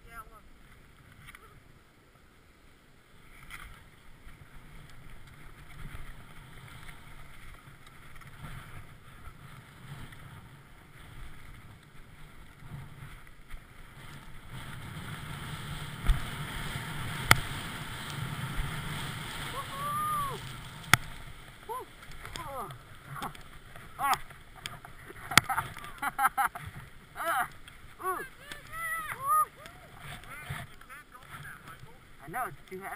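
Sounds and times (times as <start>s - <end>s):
skis sliding over snow: 2.9s - 32.9s
wind on microphone: 13.9s - 26.2s.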